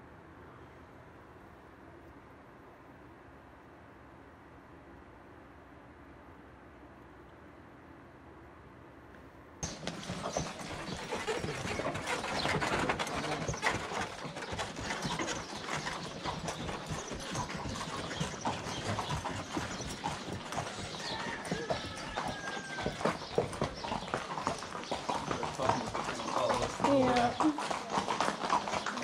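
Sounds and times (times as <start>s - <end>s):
horses' hooves clip-clopping: 9.6s - 29.0s.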